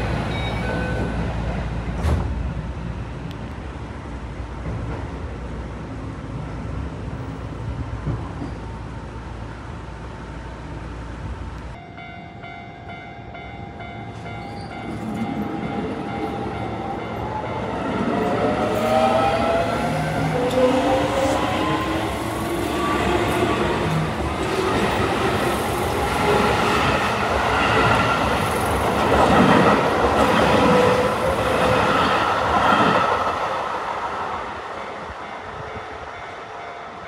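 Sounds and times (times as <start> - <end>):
train rumbling on rails: 0.0 - 37.0.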